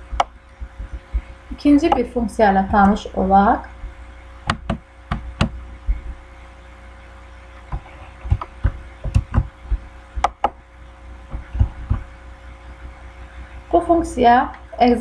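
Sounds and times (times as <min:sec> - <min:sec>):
faint steady hum: 0:00.0 - 0:15.0
computer mouse clicking: 0:10.2 - 0:10.6.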